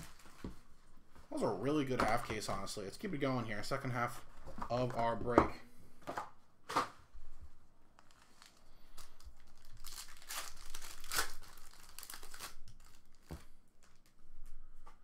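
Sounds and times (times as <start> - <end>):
foil pack crinkling and tearing: 0.0 - 0.4, 8.0 - 14.2.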